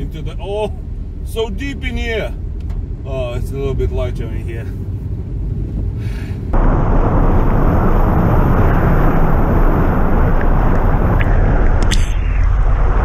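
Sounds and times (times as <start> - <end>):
car engine rumble: 0.0 - 13.0
water spraying from wheel: 6.6 - 11.9.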